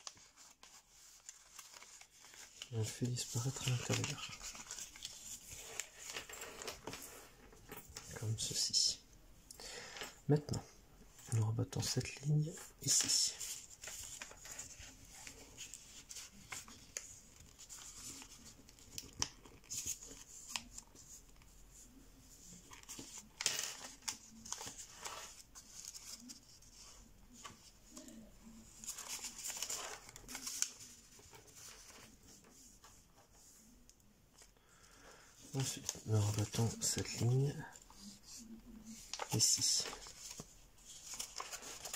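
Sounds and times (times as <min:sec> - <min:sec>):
paper rustling and crackling: 0:00.0 - 0:08.6, 0:11.2 - 0:41.9.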